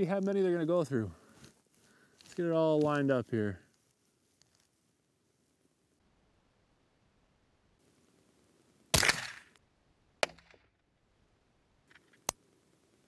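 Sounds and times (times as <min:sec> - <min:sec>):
rifle shot crack: 0:08.9 - 0:09.6.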